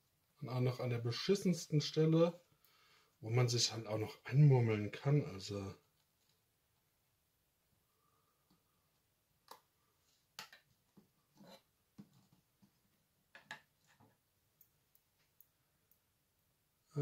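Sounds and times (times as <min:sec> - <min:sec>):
faint clicks and taps: 0:11.9 - 0:16.1.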